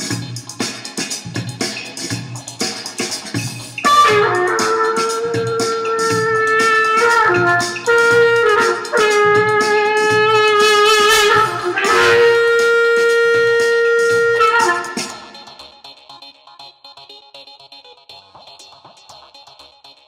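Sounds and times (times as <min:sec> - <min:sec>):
reedy wind instrument melody: 0:03.8 - 0:15.6.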